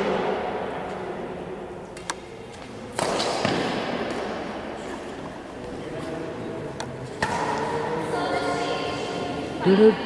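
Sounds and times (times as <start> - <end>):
racket hitting shuttlecock: 1.9 - 5.2, 6.8 - 7.9.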